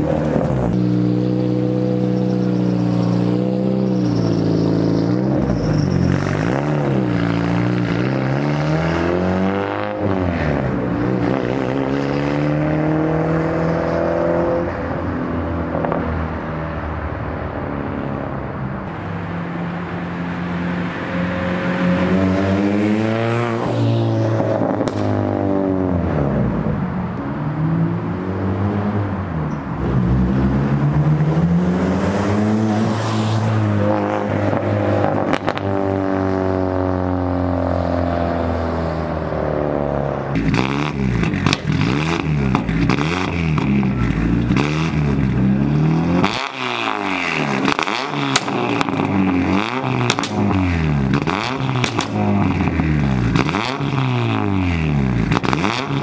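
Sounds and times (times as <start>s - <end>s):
car exhaust revving: 19.8s - 26.9s, 39.1s - 56.0s.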